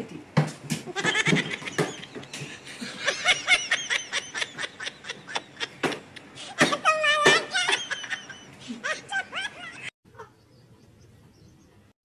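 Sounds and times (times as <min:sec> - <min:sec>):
person laughing: 0:00.9 - 0:10.4.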